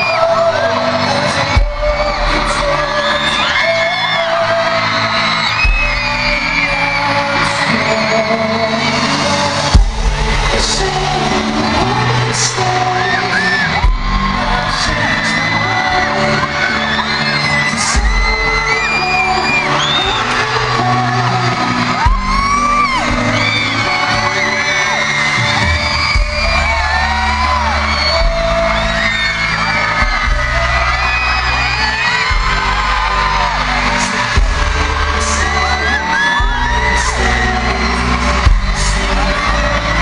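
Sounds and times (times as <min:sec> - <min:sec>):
boy band singing over pop track: 0:00.0 - 0:40.0
crowd screaming: 0:00.0 - 0:40.0
deep bass hits: 0:09.8 - 0:11.2, 0:13.8 - 0:15.0, 0:32.3 - 0:35.5.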